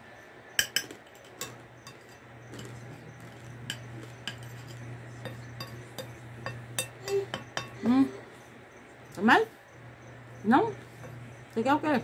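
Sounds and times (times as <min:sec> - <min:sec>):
low steady hum: 0:00.0 - 0:12.0
metal fork clinking on glass bowl: 0:00.6 - 0:07.8.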